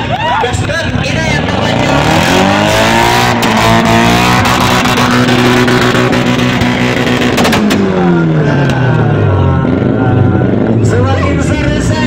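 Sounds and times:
exhaust cracks: 0.4s - 12.0s
car engine revving: 0.6s - 12.0s.

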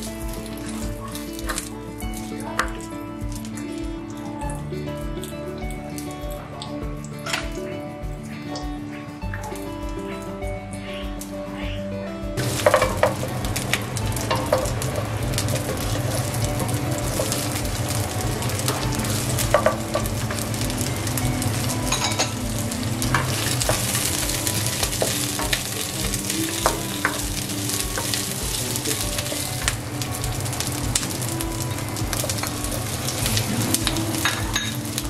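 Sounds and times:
vegetables sizzling in oil: 12.4s - 35.0s.

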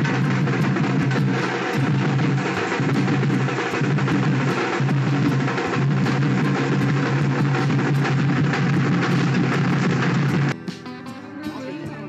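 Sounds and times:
procession drums beating: 0.0s - 10.9s.

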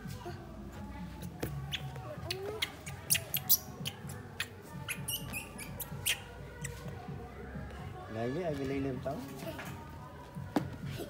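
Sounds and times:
background music: 0.0s - 11.0s
baby monkey squeaking: 1.6s - 6.8s.

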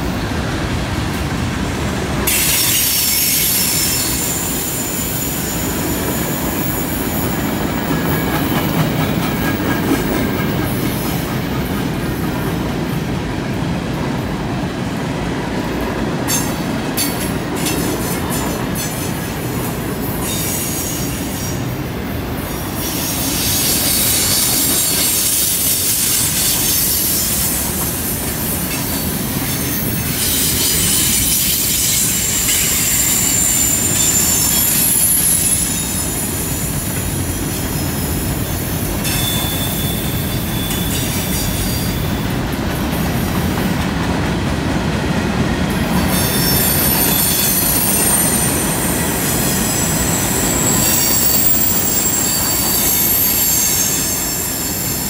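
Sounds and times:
steel wheels rumbling on rail: 0.0s - 55.0s
wheel flange squeal: 2.3s - 8.4s, 22.8s - 42.3s, 46.0s - 55.0s.

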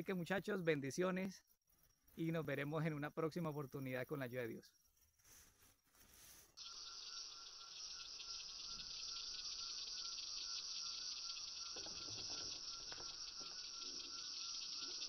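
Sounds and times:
faint rustle: 5.0s - 6.6s
insects trilling: 6.6s - 15.0s.

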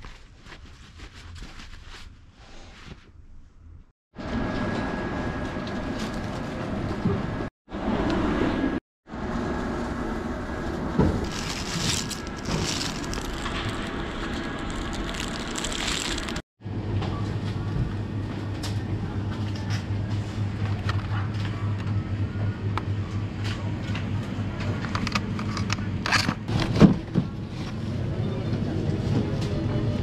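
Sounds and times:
supermarket din: 10.9s - 16.4s
rustling and clatter: 11.0s - 16.4s.

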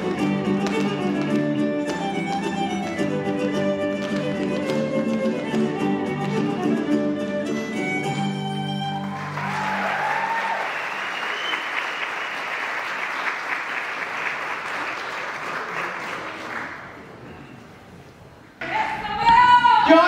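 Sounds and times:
violin and guitar music: 0.0s - 9.4s
audience applauding and cheering: 8.7s - 17.0s.

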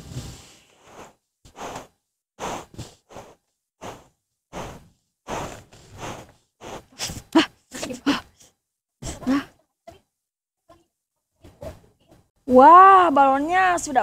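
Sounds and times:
breaths blowing up balloons: 0.0s - 9.6s.

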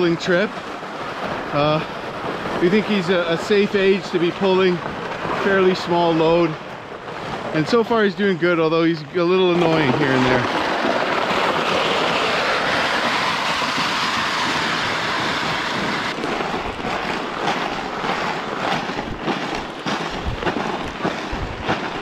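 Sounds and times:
sled runners scraping on ice: 0.0s - 22.0s
footsteps crunching on icy snow: 16.1s - 22.0s.

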